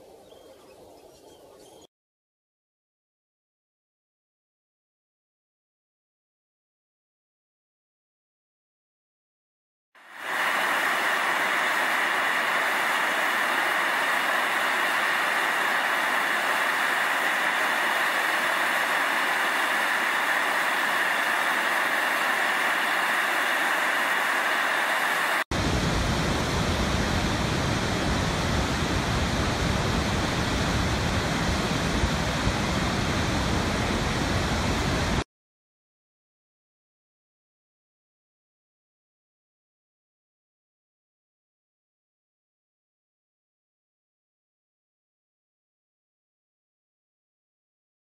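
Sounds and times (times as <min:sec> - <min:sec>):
steam hissing from a vent: 0:10.0 - 0:35.2
waterfall rushing: 0:10.0 - 0:35.2.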